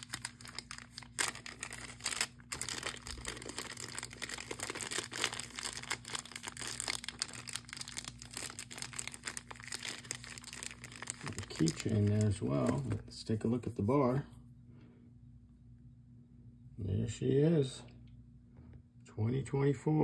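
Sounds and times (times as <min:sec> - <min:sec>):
plastic bags crinkling: 0:00.0 - 0:13.0.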